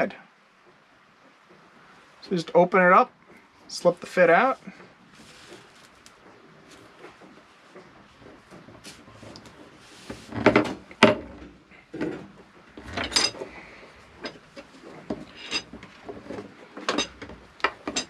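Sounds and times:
rope sliding over wood: 4.0s - 10.9s.

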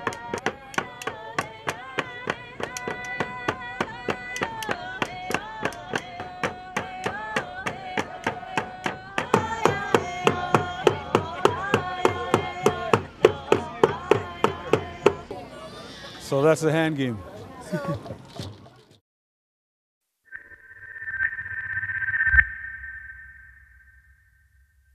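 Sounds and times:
voices chanting together: 0.0s - 16.1s.

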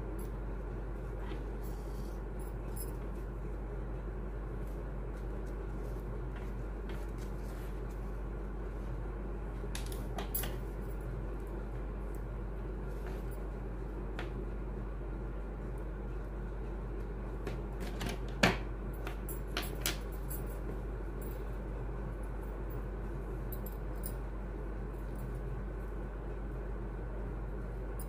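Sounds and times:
low background hum: 0.0s - 28.0s.

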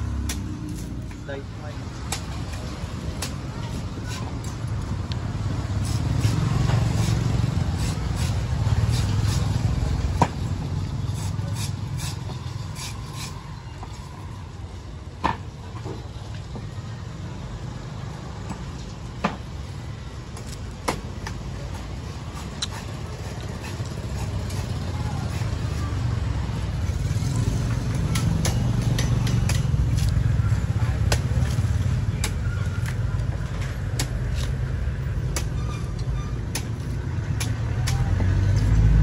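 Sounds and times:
street traffic rumble: 0.0s - 39.0s
machete striking coconut: 0.2s - 0.9s, 27.9s - 30.2s, 33.9s - 34.6s, 35.2s - 35.6s.

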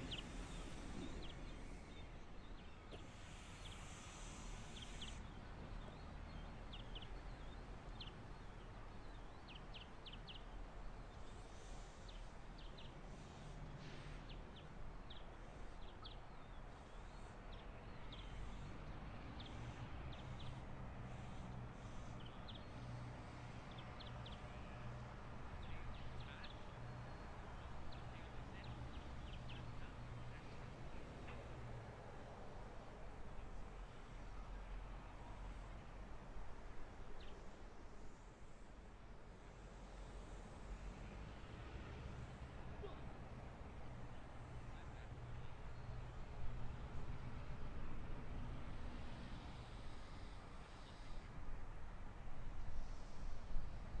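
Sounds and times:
birds chirping: 0.0s - 13.0s
distant diesel locomotive drone: 0.0s - 54.0s.

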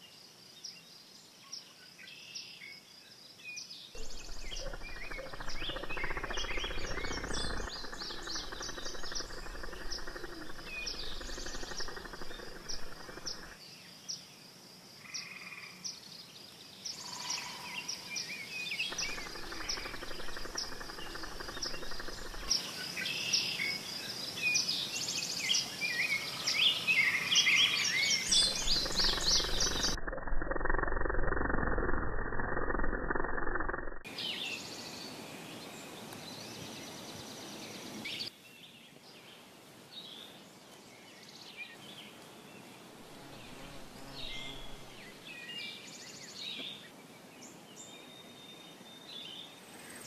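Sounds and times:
birds chirping and whistling: 4.0s - 13.4s, 28.2s - 30.0s.

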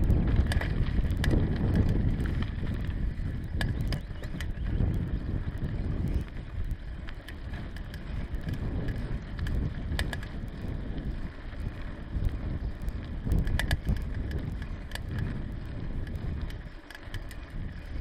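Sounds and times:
bike clicks and rattles: 0.0s - 18.0s
wind on microphone: 0.0s - 18.0s.

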